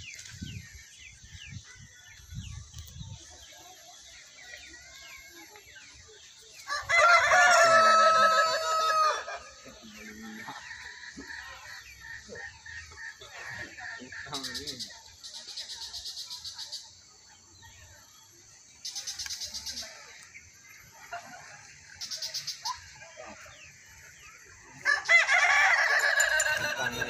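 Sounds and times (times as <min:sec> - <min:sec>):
rooster crowing: 0:06.7 - 0:09.6, 0:24.8 - 0:27.0.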